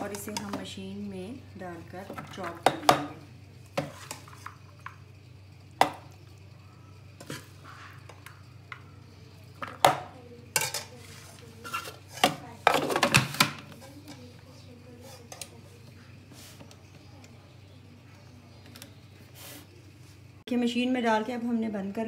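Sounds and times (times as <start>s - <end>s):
metal spoon scraping pot: 3.8s - 4.6s, 10.5s - 13.1s.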